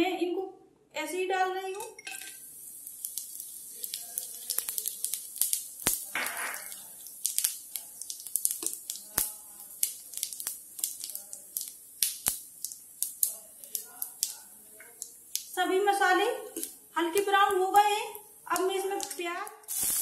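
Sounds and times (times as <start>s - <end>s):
spices sizzling in hot oil: 2.0s - 20.0s
sharp crackles and pops: 2.3s - 15.6s, 16.4s - 20.0s
loud oil hiss: 19.7s - 20.0s.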